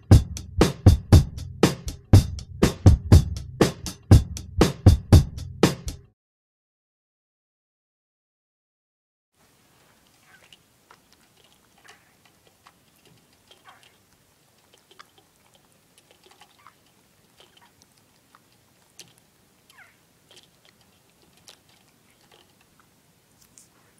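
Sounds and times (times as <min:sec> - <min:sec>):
rabbit chewing hay: 0:09.4 - 0:23.9.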